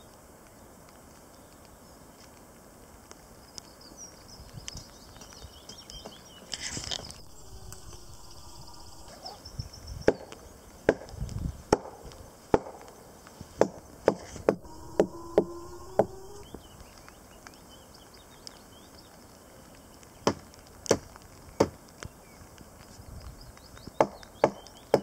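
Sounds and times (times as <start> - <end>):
stick knocking on branches: 10.1 - 14.6.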